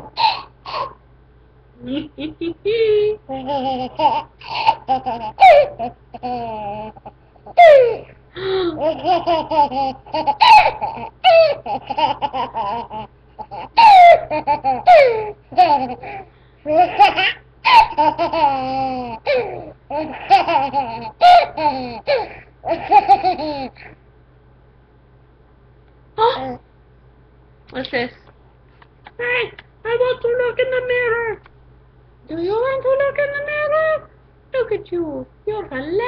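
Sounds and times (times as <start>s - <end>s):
toddler giggling: 1.9s - 8.1s, 8.8s - 24.0s.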